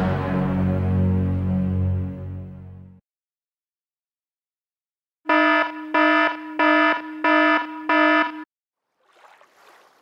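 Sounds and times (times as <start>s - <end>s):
electronic buzzer beeps: 5.3s - 8.5s
water sounds from wading: 8.8s - 10.0s.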